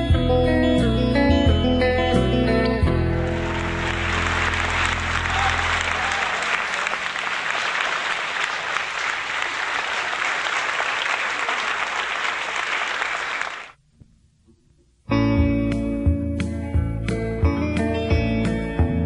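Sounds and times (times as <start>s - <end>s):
audience applauding: 3.2s - 13.8s.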